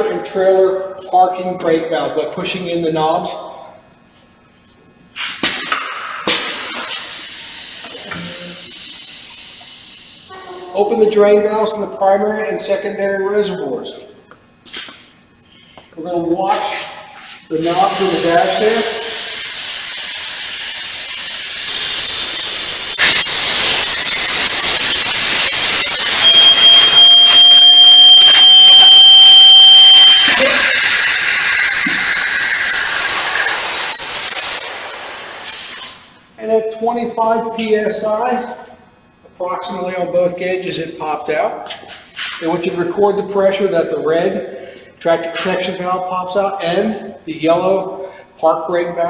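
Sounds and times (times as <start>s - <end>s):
compressed air hissing: 17.7s - 27.1s
high-pitched warning buzzer: 25.5s - 32.6s.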